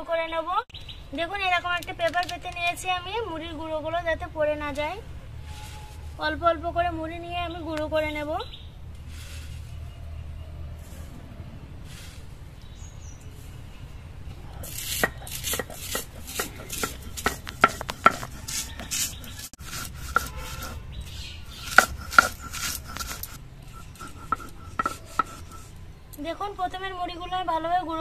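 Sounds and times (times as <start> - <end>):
stone roller crushing puffed rice: 14.6 - 25.8.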